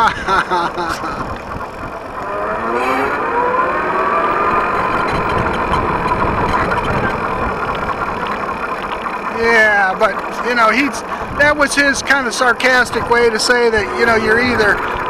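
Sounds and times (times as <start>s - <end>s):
wind and road noise: 0.0s - 15.0s
electric motor whining: 0.7s - 12.0s, 12.9s - 15.0s.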